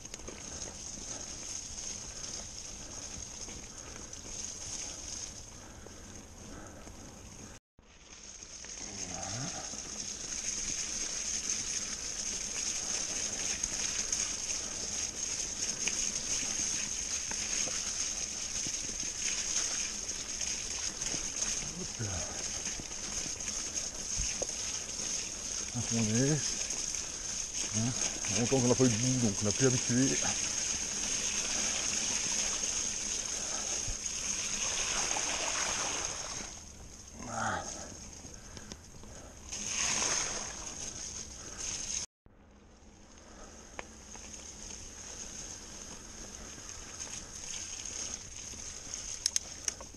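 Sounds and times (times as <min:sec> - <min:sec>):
bike tyres hissing through mud: 0:00.0 - 0:42.1, 0:42.7 - 0:49.9
crackles and splatters: 0:00.0 - 0:42.1, 0:42.9 - 0:49.9
rider vocal sound: 0:37.1 - 0:38.0.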